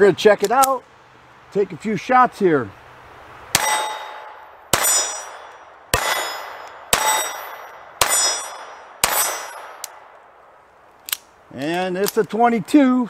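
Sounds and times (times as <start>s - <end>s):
steel targets ringing: 3.6s - 9.8s
pistol shots: 3.6s - 10.1s.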